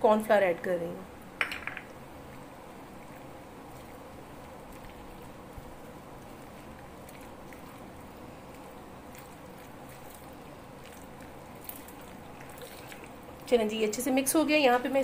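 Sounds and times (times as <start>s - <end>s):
steady low hum: 0.0s - 15.0s
wet squishing of chicken being stirred: 2.2s - 14.3s.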